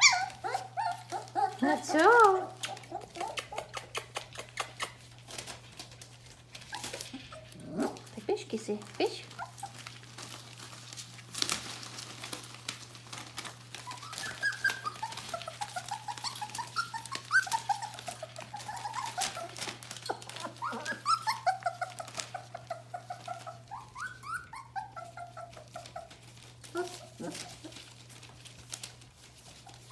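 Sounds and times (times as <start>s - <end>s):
puppies whining and squeaking: 0.0s - 8.2s, 9.0s - 10.9s, 13.2s - 29.9s
paws scratching on newspaper: 0.0s - 29.9s.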